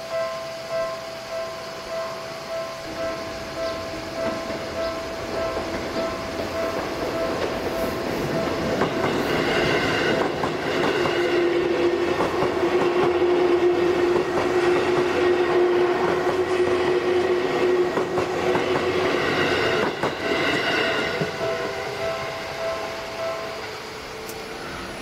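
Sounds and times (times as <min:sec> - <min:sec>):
crossing alarm ringing: 0:00.0 - 0:25.0
train wheels clattering on rails: 0:00.2 - 0:24.7.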